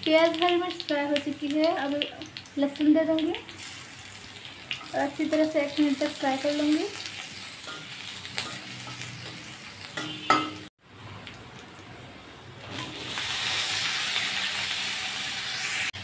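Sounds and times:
vegetables frying in oil: 0.0 - 16.0.

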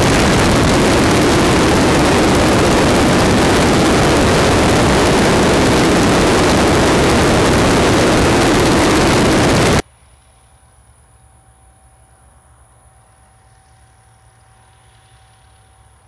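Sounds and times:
plane engine and propeller: 0.0 - 9.8
wind on microphone: 0.0 - 9.8.

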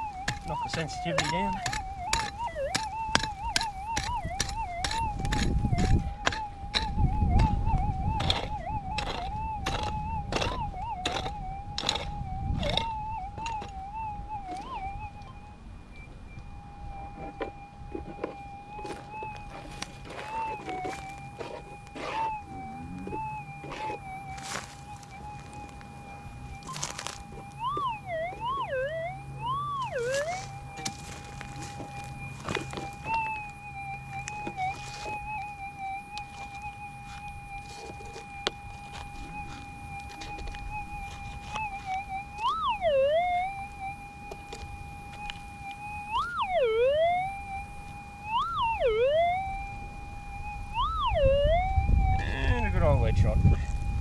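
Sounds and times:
metal detector target signal: 0.0 - 49.8, 50.4 - 54.0
metal detector threshold tone: 0.0 - 54.0.

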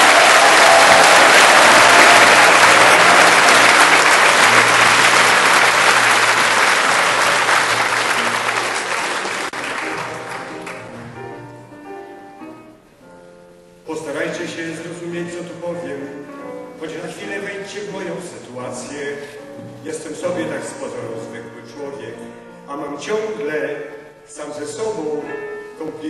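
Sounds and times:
audience applauding: 0.0 - 11.0
piano music: 0.0 - 26.0.

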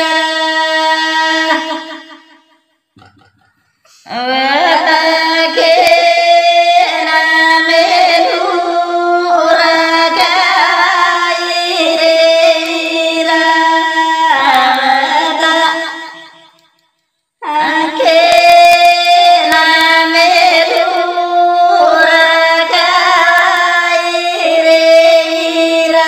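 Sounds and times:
woman singing long held notes: 3.9 - 15.8, 17.4 - 26.0.

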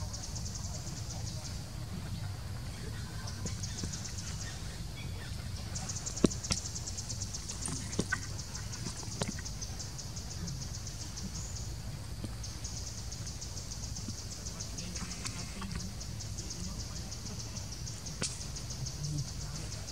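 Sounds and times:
insects trilling: 0.0 - 19.9
steady low rumble: 0.0 - 19.9
sharp snaps: 18.1 - 18.7.

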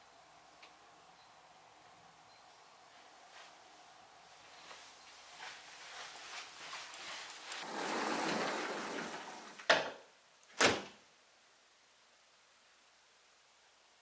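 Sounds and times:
soft footsteps: 2.8 - 9.6
rustling: 2.9 - 9.7.

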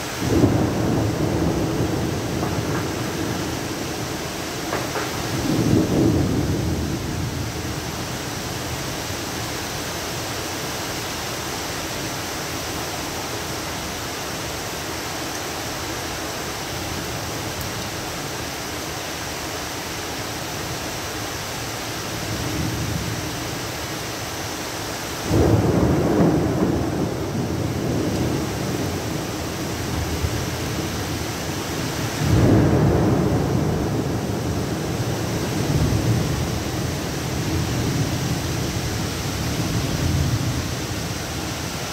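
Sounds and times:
heavy rain pouring: 0.0 - 41.9
thunder rolling: 0.2 - 7.4, 31.8 - 40.9.

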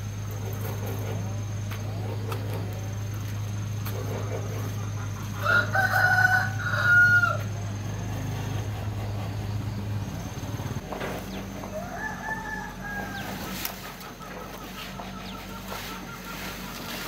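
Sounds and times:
low hum: 0.0 - 17.0
rooster crowing: 5.2 - 7.7, 11.5 - 16.7.

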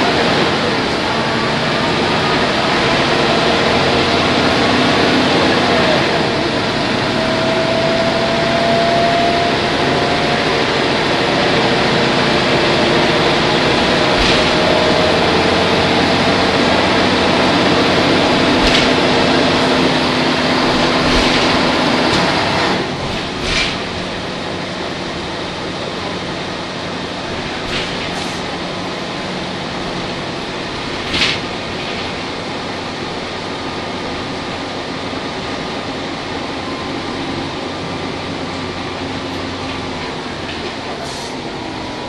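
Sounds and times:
bus diesel engine drone: 0.0 - 42.0
sharp knocks: 12.2 - 24.1.

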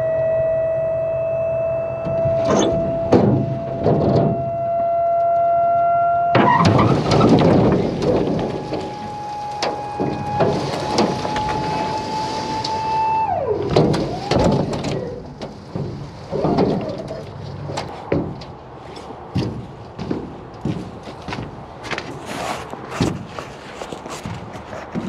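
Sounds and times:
electric hydraulic pump whine: 0.0 - 15.2
loud crash of logs: 6.4 - 18.4
logs sliding and thudding: 6.4 - 25.0.

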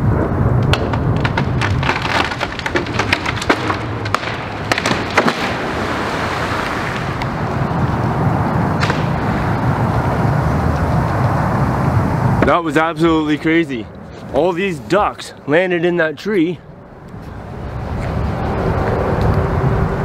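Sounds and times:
low rumble: 0.0 - 13.3
tree branch cracking: 0.6 - 7.3, 8.8 - 10.1.

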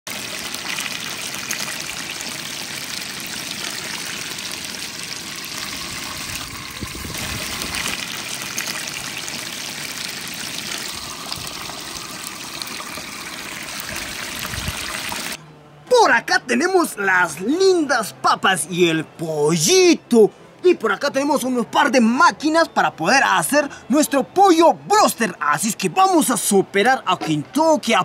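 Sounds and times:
chicken deep-frying in oil: 0.1 - 15.4.

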